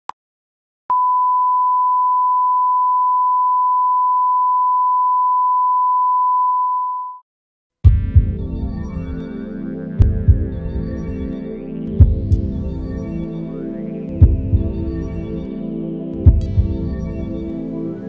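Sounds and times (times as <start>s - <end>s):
music with heavy low beats: 7.9s - 17.8s.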